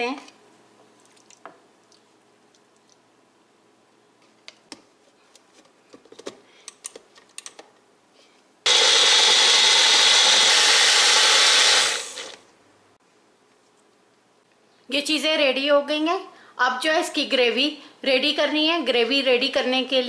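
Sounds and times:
blender motor running: 8.7 - 12.4.

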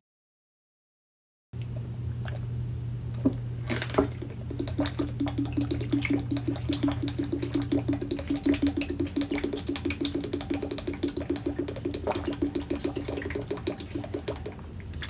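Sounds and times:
water glugging from bottle: 1.6 - 2.5, 3.2 - 15.0
gulping: 4.0 - 15.0.

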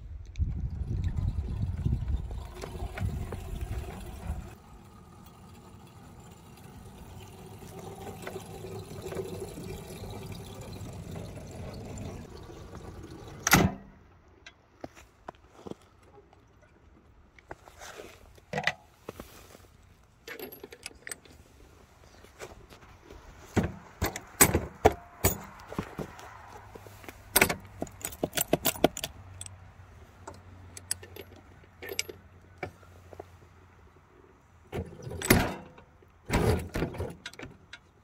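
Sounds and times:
metal coupler clinking and knocking: 27.4 - 29.5.

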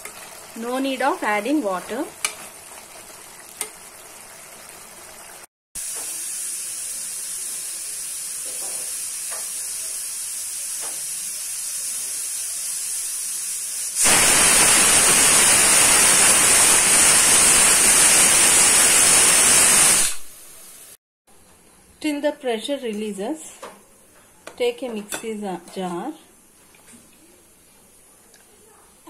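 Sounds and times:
steam hissing: 5.8 - 21.0.

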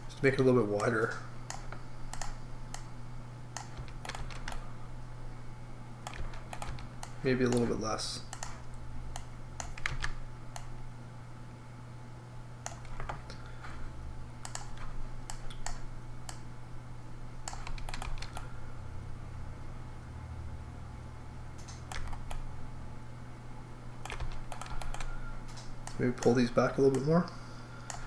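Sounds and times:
steady low hum: 0.0 - 28.0
computer keyboard clicks: 0.8 - 2.9, 3.6 - 4.6, 6.0 - 10.7, 12.6 - 13.4, 14.4 - 16.4, 17.5 - 18.5, 21.6 - 22.4, 24.0 - 27.0
mouse clicks: 0.8 - 2.9, 6.1 - 10.7, 12.6 - 13.4, 14.4 - 16.4.

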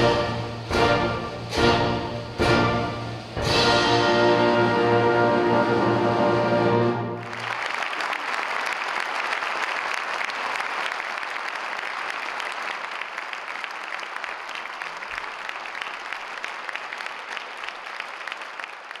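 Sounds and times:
audience applauding: 7.1 - 19.0.

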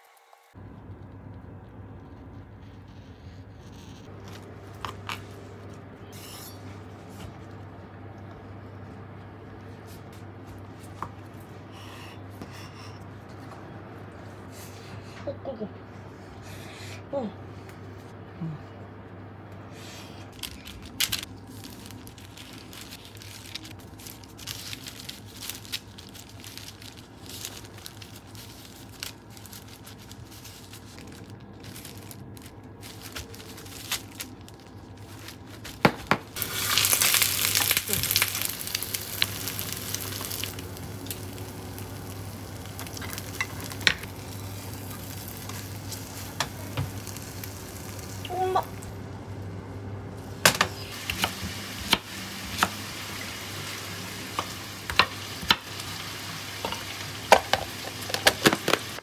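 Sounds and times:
food sizzling in oil: 36.4 - 48.4, 50.9 - 59.0.

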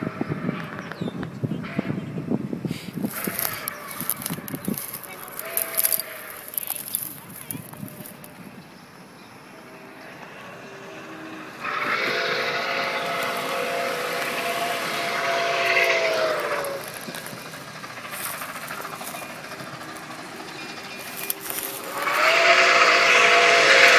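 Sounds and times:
steam locomotive whistle: 10.2 - 23.9.

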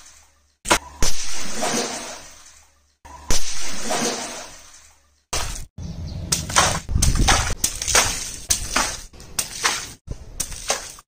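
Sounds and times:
water balloon slapping on tile: 6.3 - 11.0.

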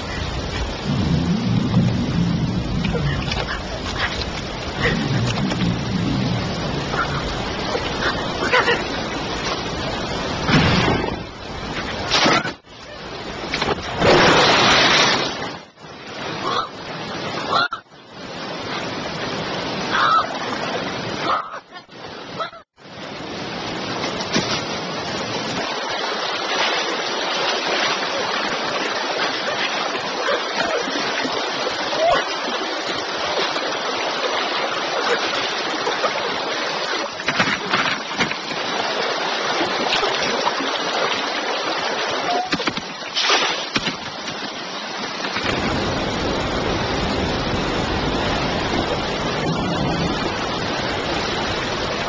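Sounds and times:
river rapids rushing: 23.1 - 52.0.

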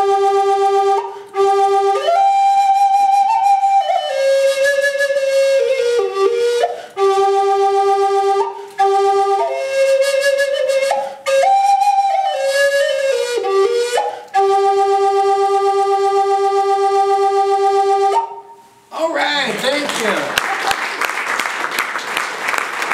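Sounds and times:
wooden flute melody: 0.0 - 18.8
flute player breathing: 1.0 - 1.5, 6.5 - 7.2, 8.5 - 9.0, 10.9 - 11.4, 13.8 - 14.5.

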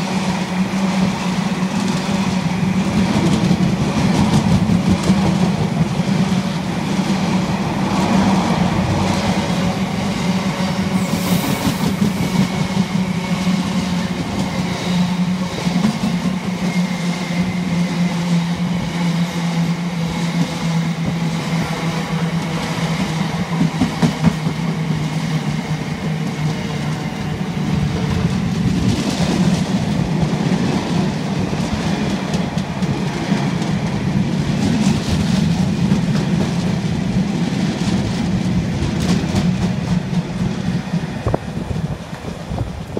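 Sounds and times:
freight train wheels rumbling: 0.0 - 42.9
train wagons clattering: 20.2 - 42.9.

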